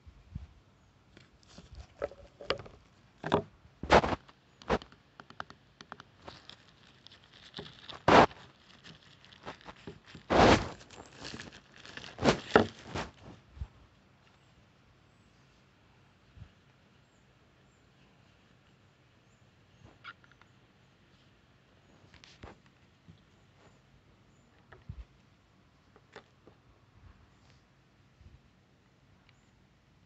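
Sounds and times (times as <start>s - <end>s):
plastic bag crinkling and tearing: 6.2s - 13.2s.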